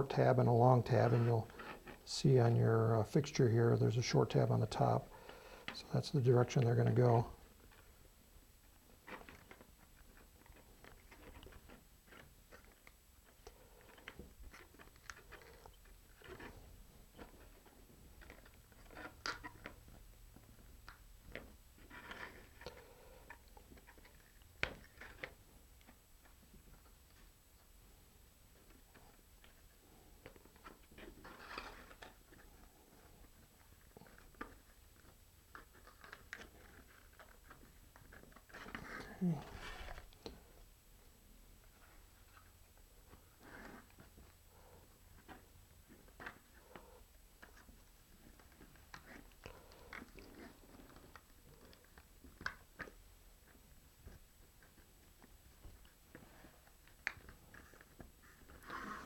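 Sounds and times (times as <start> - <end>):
clicks and crinkles of parts: 8.9 - 27.3, 28.6 - 40.4, 45.1 - 58.8.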